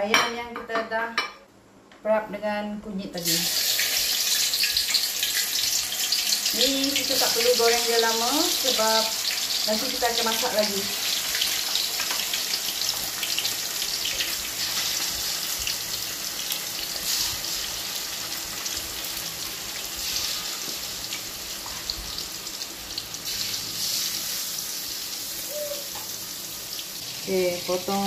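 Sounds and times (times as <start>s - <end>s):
chicken sizzling in hot oil: 3.2s - 28.0s.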